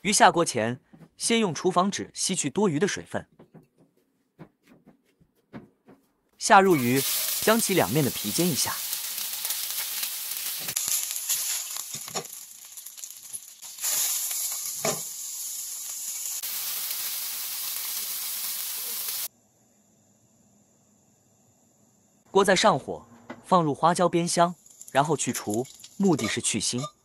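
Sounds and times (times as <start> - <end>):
fish sizzling in hot oil: 6.7 - 19.3.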